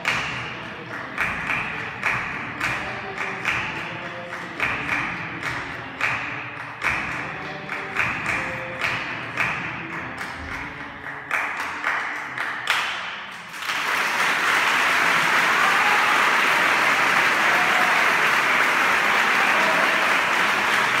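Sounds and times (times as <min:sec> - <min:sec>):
audience applause: 0:13.5 - 0:21.0.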